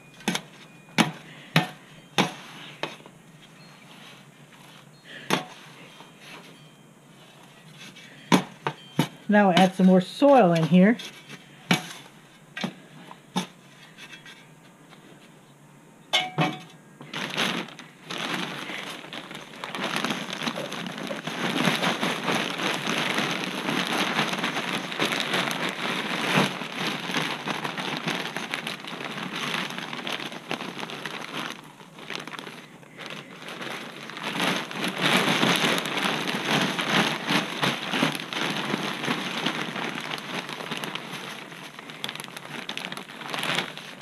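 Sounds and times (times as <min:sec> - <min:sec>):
plastic bag crinkling: 0:07.2 - 0:13.0, 0:17.0 - 0:44.0
soil pouring from a bag: 0:17.1 - 0:44.0.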